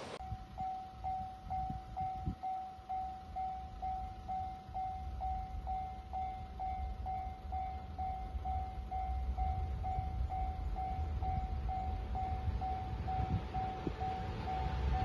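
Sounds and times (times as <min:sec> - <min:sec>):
level-crossing warning bell: 0:00.0 - 0:15.0
low rumble: 0:03.9 - 0:15.0.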